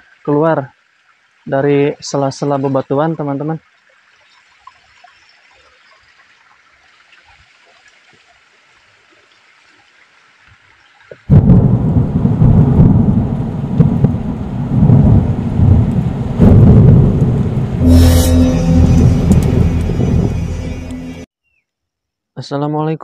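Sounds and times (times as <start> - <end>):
rain: 3.7 - 20.9
deep rolling thunder: 11.3 - 21.2.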